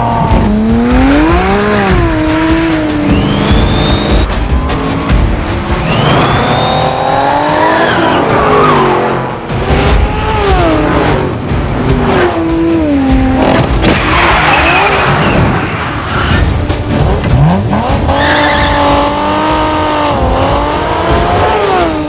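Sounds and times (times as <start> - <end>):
car engines revving: 0.0 - 22.0
tyres squealing and skidding: 5.8 - 9.2, 13.8 - 16.6, 17.9 - 19.1.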